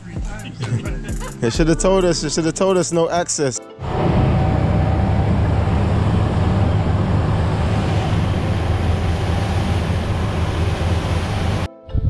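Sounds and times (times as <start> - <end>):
motor boat engine drone: 3.8 - 11.7
wind and water rushing: 3.8 - 11.7.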